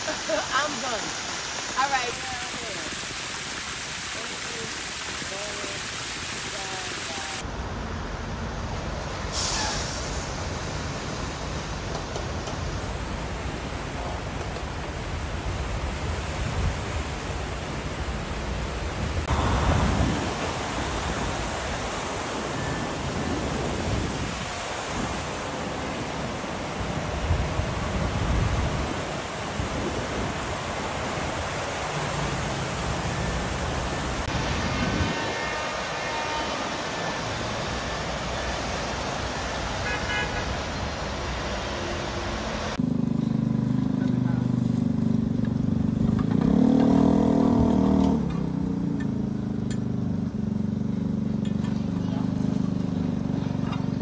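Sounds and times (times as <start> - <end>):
steady rushing hiss: 0.0 - 42.8
vehicles churning through floodwater: 0.0 - 54.0.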